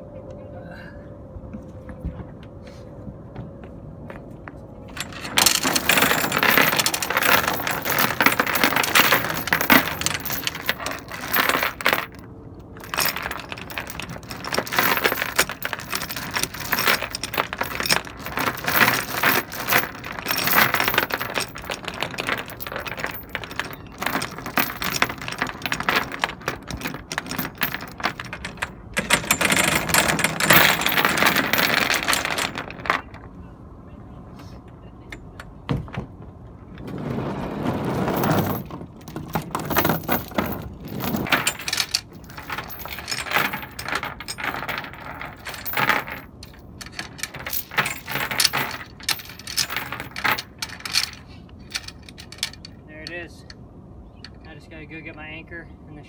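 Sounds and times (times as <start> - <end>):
steel chain clinking and rattling: 4.9 - 33.3, 37.8 - 53.6.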